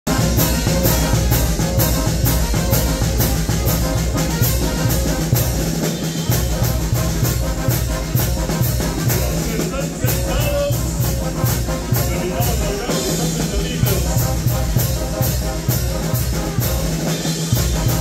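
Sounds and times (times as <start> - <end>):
brass band playing: 0.0 - 18.0
bass drum and cymbal beat: 0.1 - 18.0
tuba bass line: 0.1 - 18.0.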